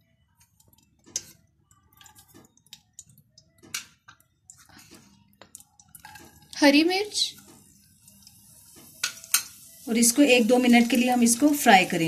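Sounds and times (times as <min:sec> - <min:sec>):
garlic sizzling in oil: 0:05.9 - 0:12.0.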